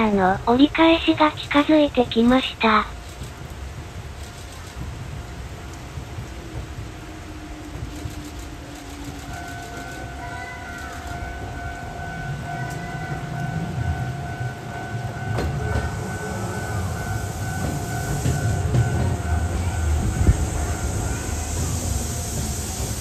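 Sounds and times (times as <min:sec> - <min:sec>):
electric train rumbling: 0:00.0 - 0:23.0
steady high tone: 0:08.0 - 0:23.0
train brake hiss: 0:15.7 - 0:23.0.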